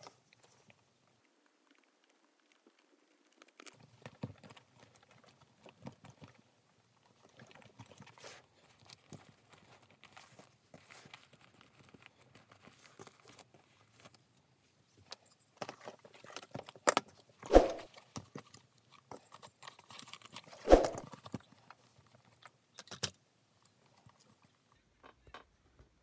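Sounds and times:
zipper and buckle clicks: 17.5s - 17.9s, 20.1s - 21.1s
leather rustling: 17.5s - 18.4s, 19.2s - 21.6s.

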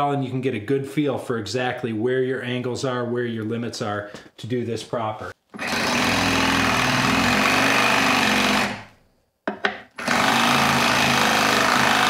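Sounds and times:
reciprocating saw filing buzz: 5.6s - 8.8s, 10.0s - 12.0s.

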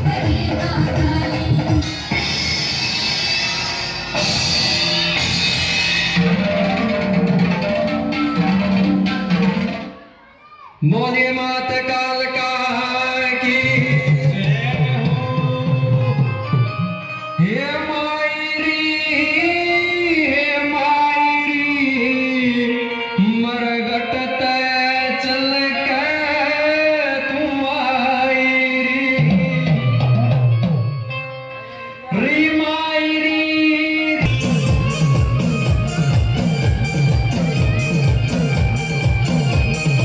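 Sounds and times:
amplified devotional singing: 0.0s - 2.1s
tabla and drum backing: 0.0s - 31.3s, 34.2s - 40.0s.

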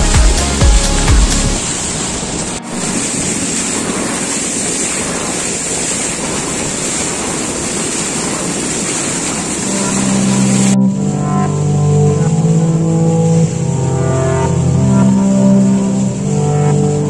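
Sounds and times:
water rushing past boat: 0.0s - 11.4s.

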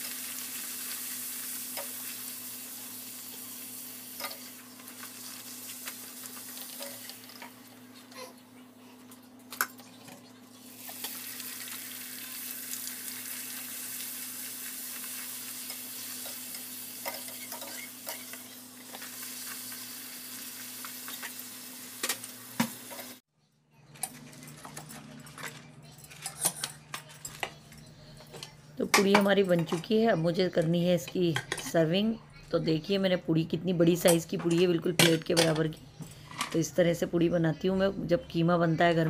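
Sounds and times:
dough frying in hot oil: 0.0s - 8.2s, 9.7s - 23.2s.

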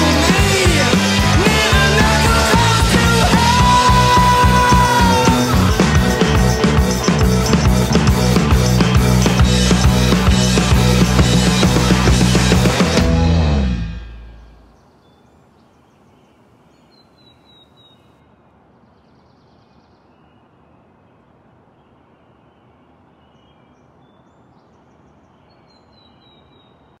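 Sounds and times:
outdoor ambient noise: 0.0s - 27.0s
high bird chirps: 1.5s - 12.8s.

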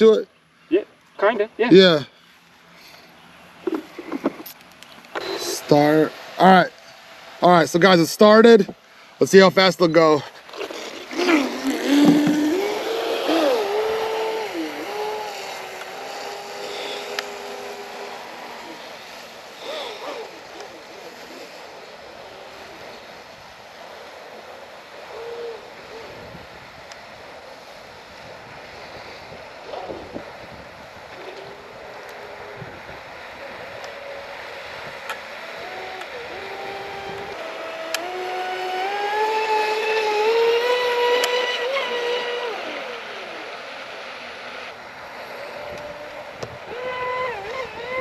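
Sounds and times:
model boat electric motor whining: 5.2s - 5.9s, 10.5s - 26.2s, 31.1s - 48.0s.

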